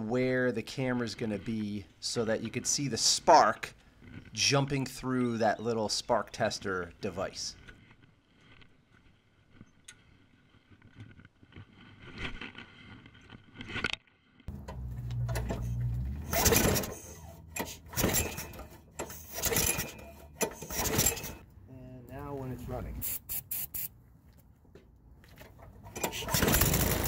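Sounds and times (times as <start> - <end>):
pull-cord starter rasping: 14.5 - 21.4, 25.8 - 27.0.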